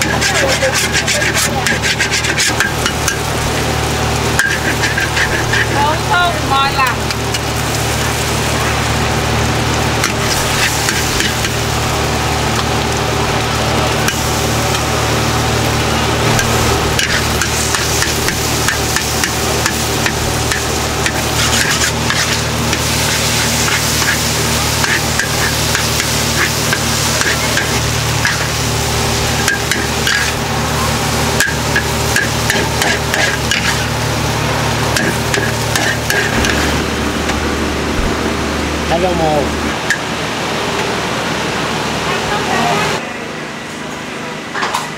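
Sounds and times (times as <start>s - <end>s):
metal spatula scraping a wok: 0.0s - 3.3s, 4.3s - 6.0s, 10.0s - 11.6s, 16.3s - 28.6s, 29.4s - 30.4s, 31.4s - 34.0s, 34.9s - 36.8s
noodles sizzling in a wok: 0.0s - 38.0s
low rumble: 34.0s - 39.9s.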